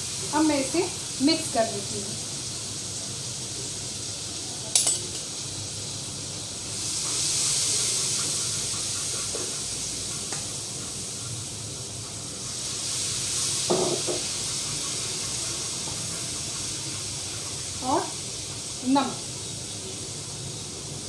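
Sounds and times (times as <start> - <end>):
oil and spices sizzling in a pan: 0.0 - 21.0
spatula stirring in a pan: 6.4 - 21.0.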